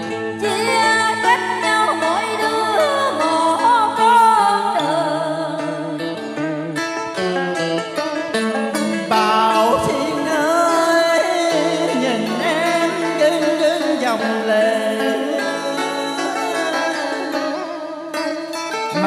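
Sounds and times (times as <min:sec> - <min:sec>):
plucked strings: 0:00.0 - 0:19.0
man singing: 0:08.7 - 0:17.6.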